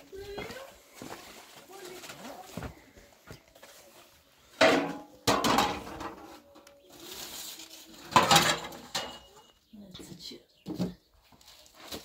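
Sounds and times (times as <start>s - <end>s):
metal pots and dishes clattering: 4.6s - 6.4s, 8.1s - 9.5s.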